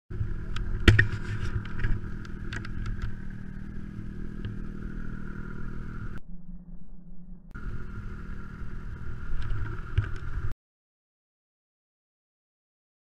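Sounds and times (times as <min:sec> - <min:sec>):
snowmobile engine running: 0:00.1 - 0:06.2, 0:07.2 - 0:10.5.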